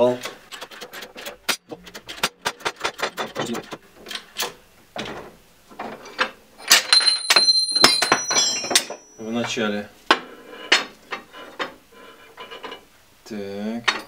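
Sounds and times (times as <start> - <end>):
metal parts clicking and knocking: 0.2 - 5.2, 5.8 - 9.2
sharp metal clinks ringing: 6.6 - 9.4.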